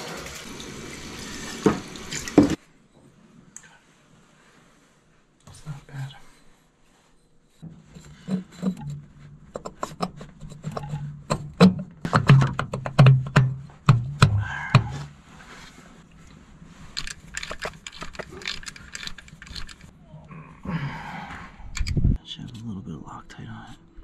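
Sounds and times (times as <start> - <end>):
metal parts clinking and scraping: 16.9 - 19.9.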